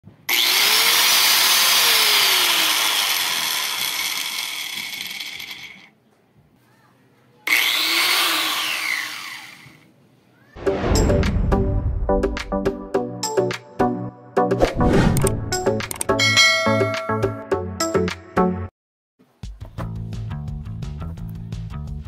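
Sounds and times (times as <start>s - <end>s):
angle grinder motor whine: 0.3s - 5.9s, 7.5s - 9.8s.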